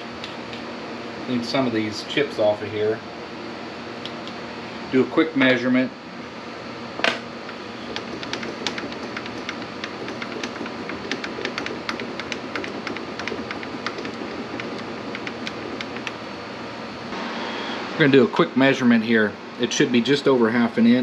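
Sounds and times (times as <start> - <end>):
air conditioner hum: 0.0 - 21.0.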